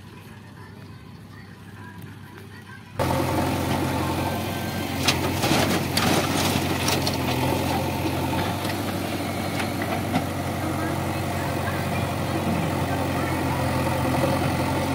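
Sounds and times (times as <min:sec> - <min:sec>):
diesel engine running: 0:03.0 - 0:14.9
soil dropping into trolley: 0:04.9 - 0:10.4.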